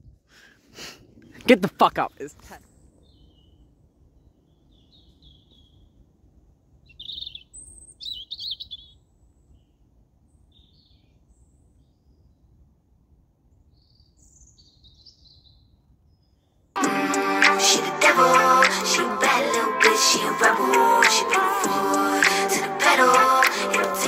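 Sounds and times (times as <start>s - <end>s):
robin singing: 6.9s - 9.0s.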